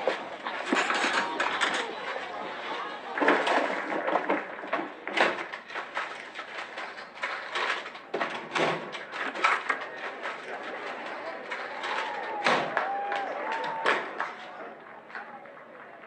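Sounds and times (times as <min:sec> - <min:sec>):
wooden drawers knocking and clattering: 0:07.6 - 0:10.1.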